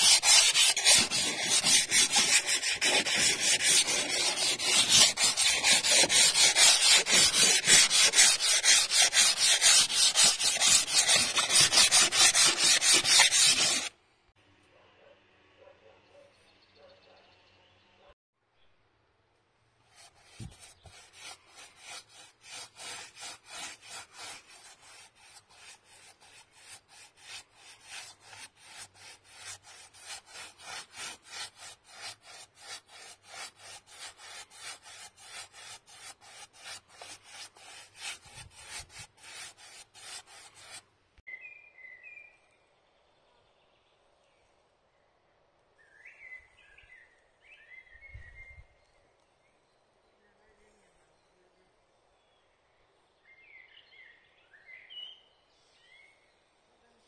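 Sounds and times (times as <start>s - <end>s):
paintbrush scrubbing wooden boards: 0.0s - 13.9s, 19.9s - 40.8s
bird chirping: 41.3s - 44.5s, 45.8s - 52.5s.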